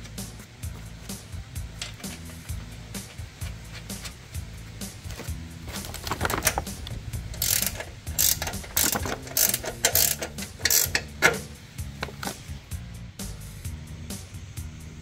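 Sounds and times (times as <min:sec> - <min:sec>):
ratchet wrench clicking: 0:05.8 - 0:12.5.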